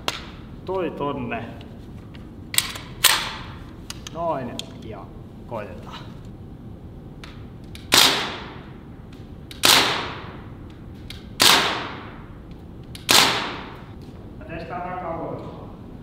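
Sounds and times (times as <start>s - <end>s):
air rifle shots with echo: 7.9s - 8.6s, 9.6s - 10.4s, 11.4s - 12.2s, 13.1s - 13.8s.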